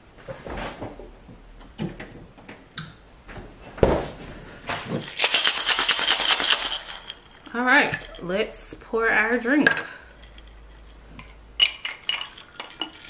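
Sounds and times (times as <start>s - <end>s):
knocks and thud: 3.8s - 5.0s
ice rattling in cocktail shaker: 5.0s - 8.6s, 9.6s - 13.0s.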